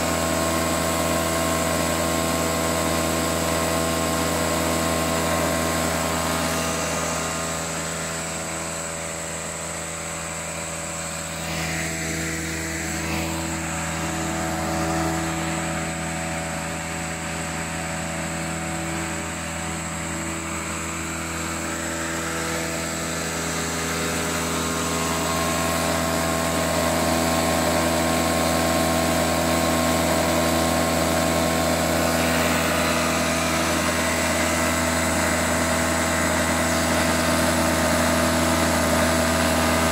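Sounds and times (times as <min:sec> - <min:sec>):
lawnmower engine running: 0:00.0 - 0:39.9.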